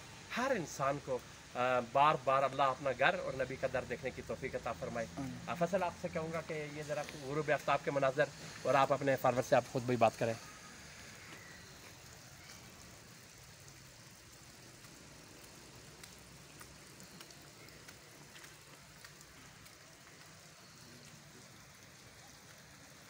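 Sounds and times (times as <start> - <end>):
faint ticks: 11.2 - 22.9.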